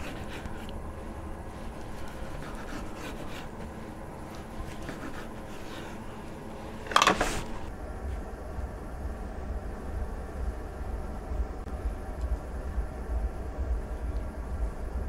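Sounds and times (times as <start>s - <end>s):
knife sawing through crusty meat: 0.0s - 0.7s, 1.8s - 3.7s, 4.6s - 6.0s.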